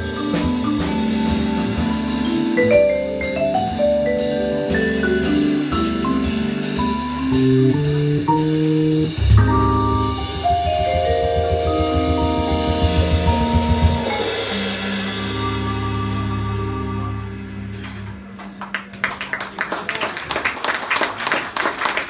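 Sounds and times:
drum kit: 0.0 - 19.4
vibraphone: 0.1 - 6.8.

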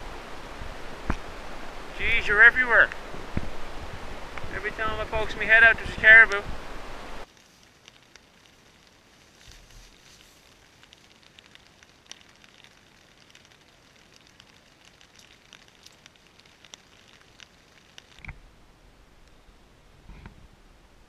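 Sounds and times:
wind rumble on microphone: 0.0 - 7.2, 19.8 - 21.0
raindrops tapping on tent: 0.0 - 18.5.

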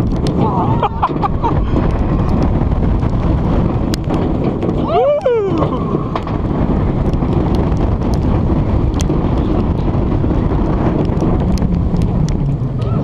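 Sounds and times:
roller coaster train rumbling: 0.0 - 13.0
wind buffeting camera: 0.0 - 13.0.

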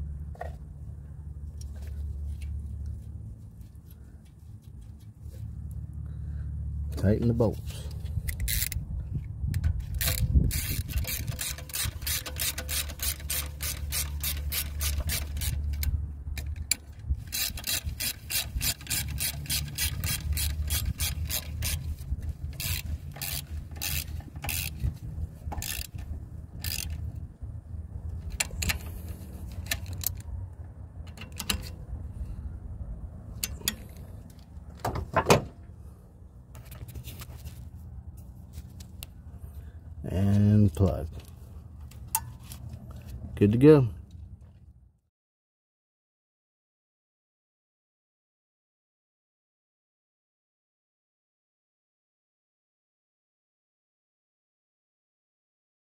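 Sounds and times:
steady low rumble: 0.0 - 34.8
ratchet wrench clicking: 8.2 - 8.8, 9.6 - 24.9, 25.5 - 27.1, 28.3 - 30.2.

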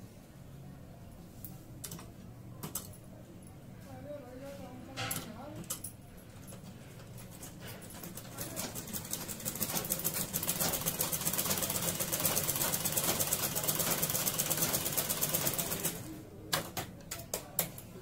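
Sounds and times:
sewing machine clatter: 7.2 - 16.1.

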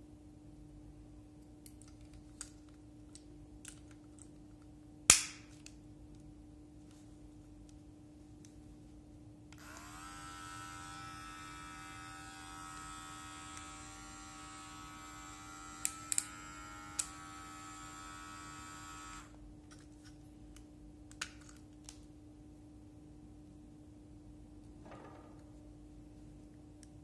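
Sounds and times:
hair clipper motor whirring: 9.6 - 19.4.

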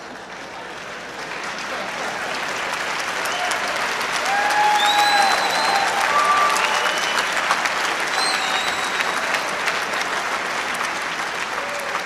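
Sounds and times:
audience applauding: 0.0 - 12.0
cheers and whistles: 3.2 - 10.0, 11.5 - 12.0.

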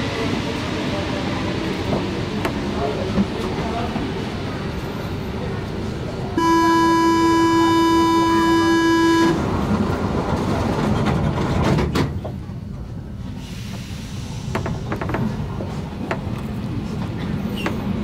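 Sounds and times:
train rumble: 0.0 - 18.0
train door warning buzz: 6.4 - 9.4.

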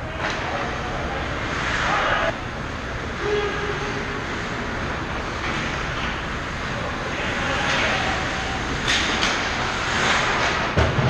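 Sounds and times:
skates scraping on ice: 8.9 - 11.0.

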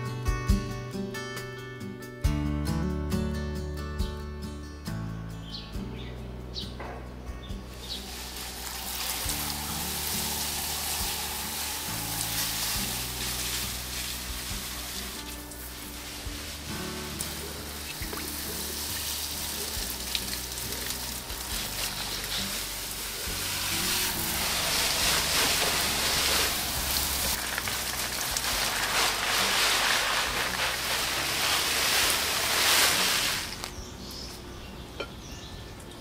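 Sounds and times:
water spraying from a hose: 7.7 - 33.8.

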